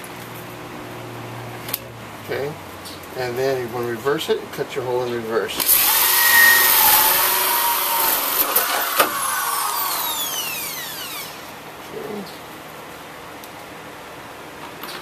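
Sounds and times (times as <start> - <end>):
fan running: 0.0 - 15.0
drill hole saw grinding pipe: 5.6 - 11.5
drill motor winding down: 5.6 - 11.6.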